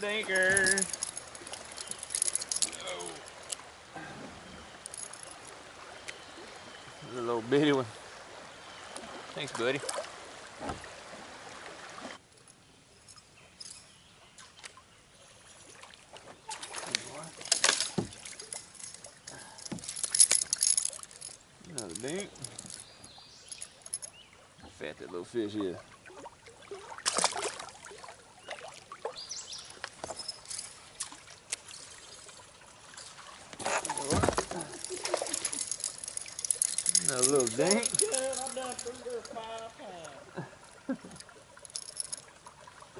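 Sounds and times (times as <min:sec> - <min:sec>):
rush of water: 0:00.0 - 0:12.3, 0:14.4 - 0:22.9, 0:23.6 - 0:42.9
fish splashing into water: 0:26.0 - 0:29.2.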